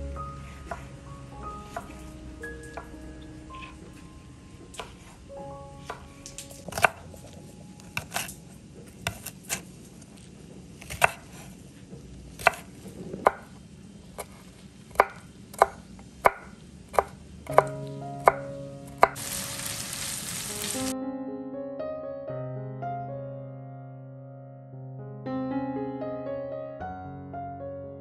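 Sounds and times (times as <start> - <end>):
piano music: 0.0 - 9.3, 17.0 - 28.0
knife chopping on wooden board: 0.6 - 1.0, 1.6 - 2.1, 4.8 - 5.1, 6.7 - 7.3, 7.9 - 8.3, 8.9 - 9.7, 10.8 - 11.5, 12.4 - 13.6, 14.2 - 18.4.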